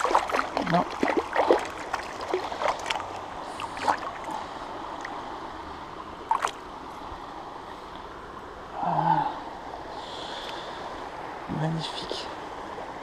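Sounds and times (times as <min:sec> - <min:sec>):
fish thrashing and splashing: 0:00.0 - 0:04.4, 0:06.3 - 0:06.6
river rushing: 0:00.0 - 0:13.0.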